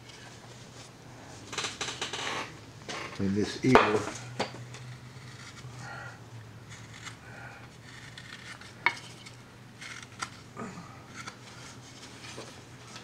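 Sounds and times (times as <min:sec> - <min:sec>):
steady low hum: 0:00.0 - 0:13.0
carving tool scraping wood: 0:04.7 - 0:06.0, 0:06.6 - 0:10.4, 0:11.1 - 0:13.0.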